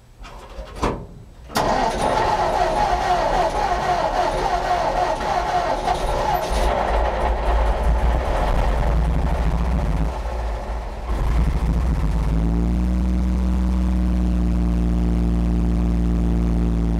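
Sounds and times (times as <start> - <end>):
starter motor whine: 1.5 - 13.9
engine running rough: 1.5 - 16.9.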